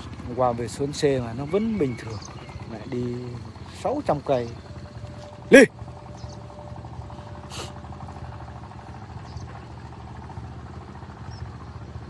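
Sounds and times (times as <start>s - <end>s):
engine idling: 0.0s - 12.0s
short hiss: 7.5s - 7.8s.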